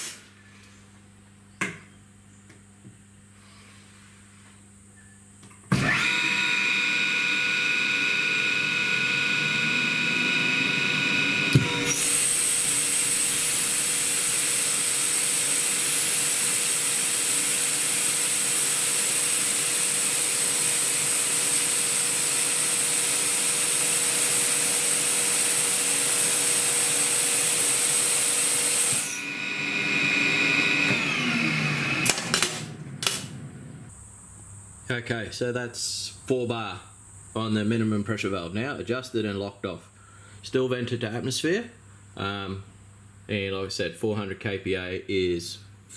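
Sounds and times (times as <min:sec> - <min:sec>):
air compressor whine: 0:04.4 - 0:35.0
compressor loading click: 0:32.0 - 0:33.4.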